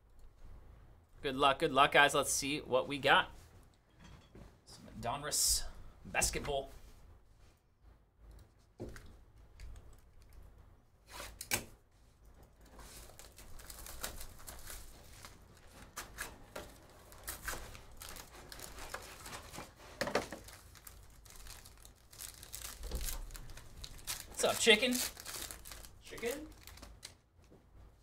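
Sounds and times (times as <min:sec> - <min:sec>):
wrappers crinkling and tearing: 0:12.6 - 0:27.3.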